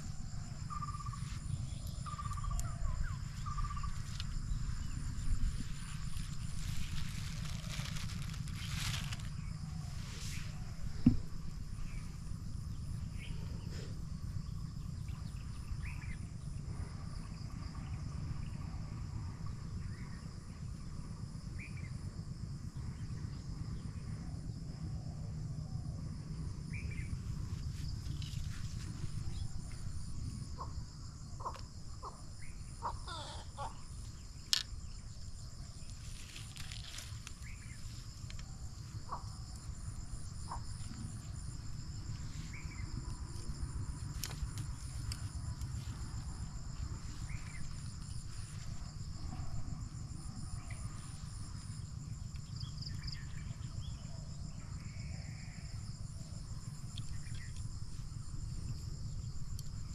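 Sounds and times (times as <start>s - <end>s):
low rumble: 0.0s - 31.2s
insects trilling: 0.0s - 59.9s.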